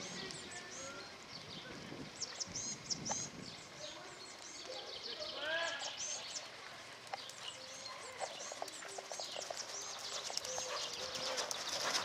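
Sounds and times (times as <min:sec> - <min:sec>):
birds singing: 0:00.0 - 0:12.0
horse hoofbeats on sand: 0:07.2 - 0:12.0.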